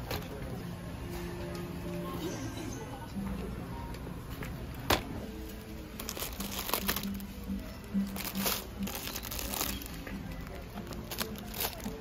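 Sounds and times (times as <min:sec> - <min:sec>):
background music: 0:00.0 - 0:12.0
plastic wrappers crinkling: 0:06.0 - 0:12.0.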